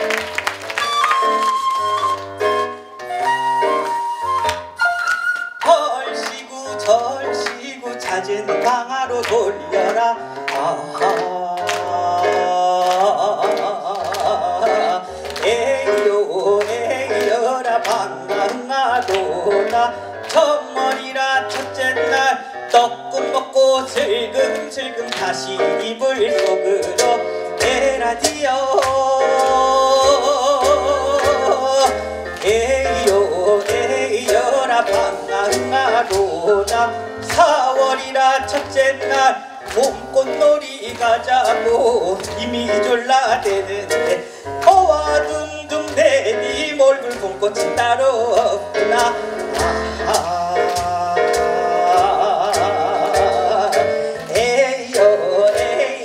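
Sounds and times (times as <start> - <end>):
keyboard: 0.0 - 56.0
plucked double bass: 26.2 - 39.2, 39.8 - 55.7.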